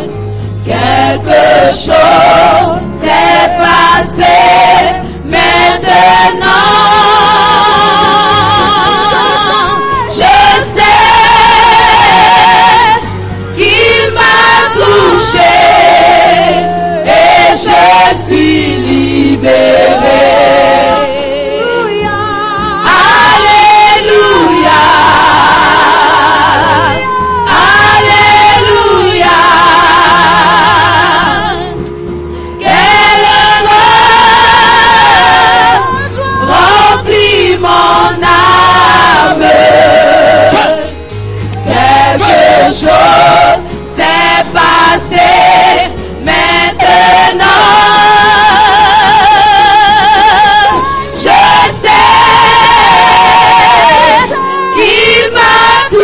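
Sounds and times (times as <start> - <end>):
gospel choir singing: 0.0 - 56.0
band accompaniment: 5.4 - 14.6.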